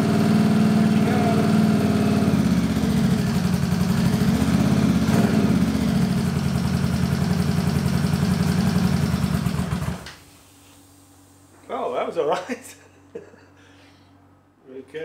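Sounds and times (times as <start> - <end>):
motorcycle engine running: 0.0 - 10.1.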